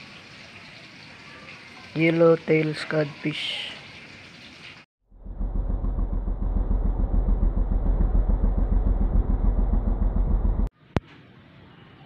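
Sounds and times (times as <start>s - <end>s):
vehicle engine rumbling: 5.1s - 10.7s.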